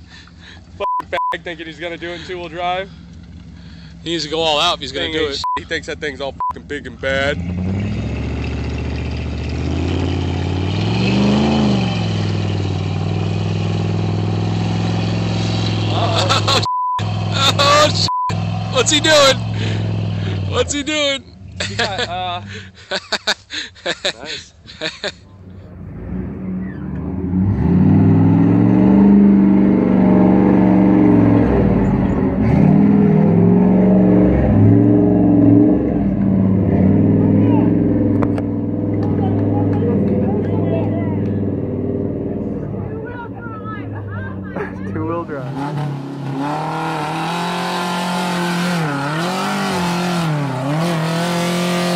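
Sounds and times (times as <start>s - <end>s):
suv engine revving under load: 7.0s - 20.7s, 25.5s - 51.9s.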